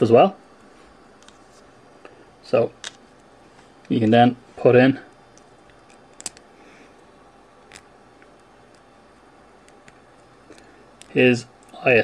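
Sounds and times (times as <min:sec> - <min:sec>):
small plastic parts clicking: 0:05.4 - 0:06.4.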